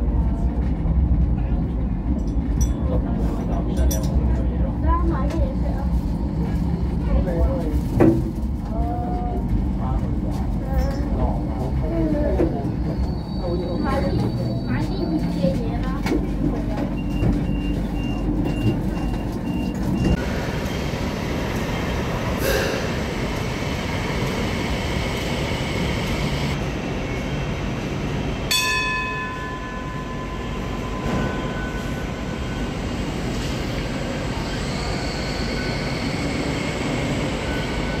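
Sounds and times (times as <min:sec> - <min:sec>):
train car rumble and hiss: 0:00.0 - 0:38.0
sharp ringing tone: 0:28.5 - 0:32.7.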